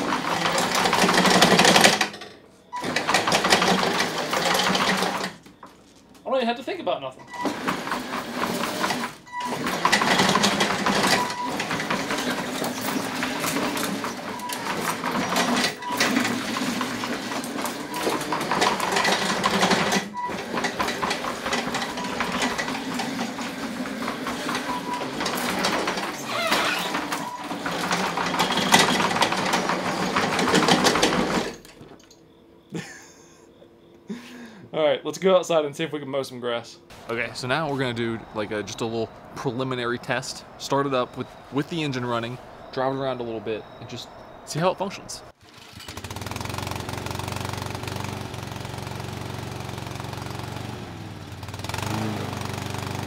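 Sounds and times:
electric motors whining and grinding: 0:07.2 - 0:33.6, 0:45.8 - 0:53.0.

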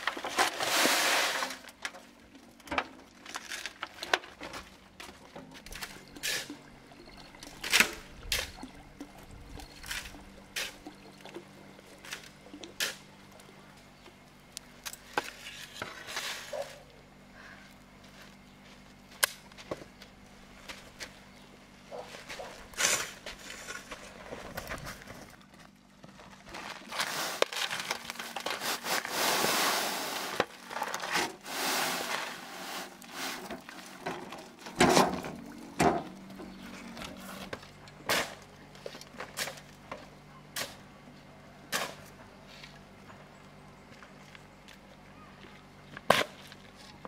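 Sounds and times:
rough scraping: 0:15.2 - 0:16.8, 0:26.5 - 0:33.7.

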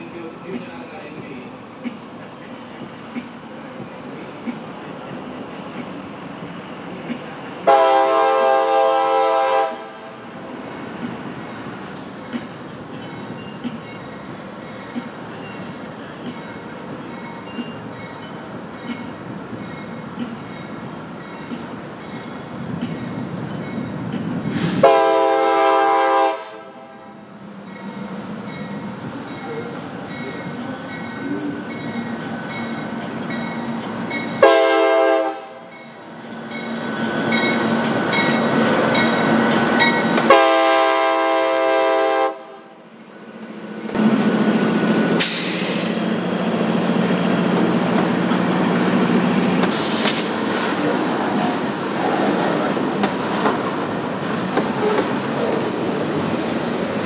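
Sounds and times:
locomotive air horn blasts: 0:07.6 - 0:10.2, 0:24.8 - 0:27.2, 0:34.4 - 0:35.7, 0:40.2 - 0:42.7.

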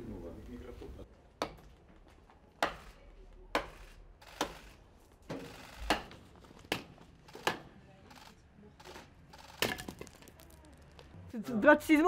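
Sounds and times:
axe chopping wood: 0:02.6 - 0:02.8, 0:03.5 - 0:03.8, 0:05.9 - 0:07.7.

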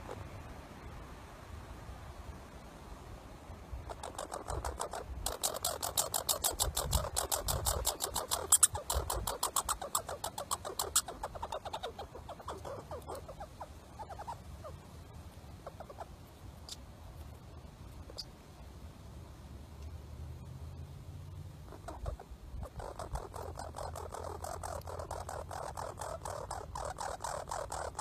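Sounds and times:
squirrel chattering: 0:03.9 - 0:14.8, 0:15.6 - 0:16.8, 0:21.7 - 0:28.0.

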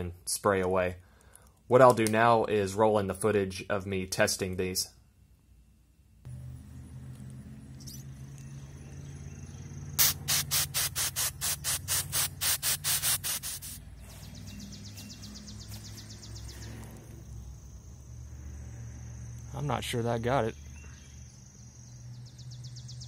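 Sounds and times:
pepper spray hissing: 0:10.0 - 0:14.3.

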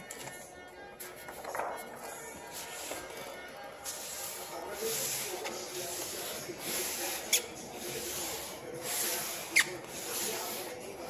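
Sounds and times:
hand rubbing plastic sheet: 0:02.4 - 0:11.0.

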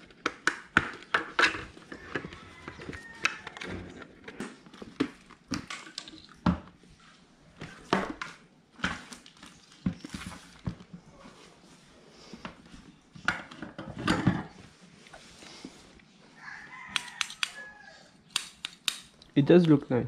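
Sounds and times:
plastic helmet clicks and knocks: 0:00.0 - 0:02.2, 0:18.3 - 0:19.3.

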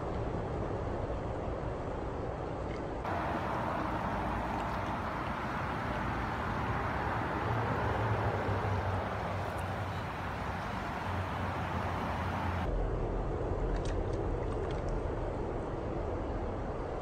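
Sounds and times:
stream running over rocks: 0:02.4 - 0:12.7
water splashes: 0:02.5 - 0:12.7.

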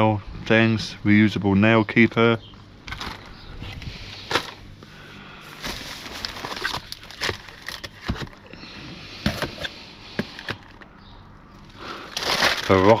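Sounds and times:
packaging rustling: 0:05.5 - 0:08.5, 0:12.1 - 0:13.0
packaged items clicking and knocking: 0:05.7 - 0:08.5.

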